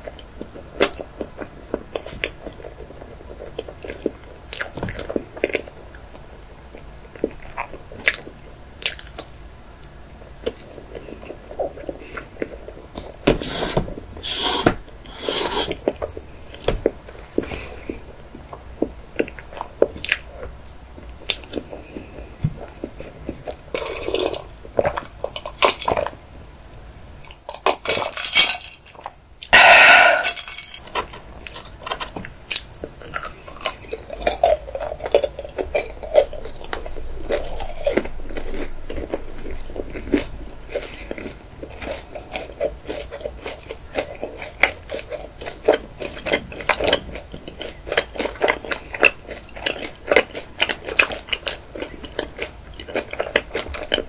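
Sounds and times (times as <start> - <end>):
wet chewing: 28.8 - 54.0.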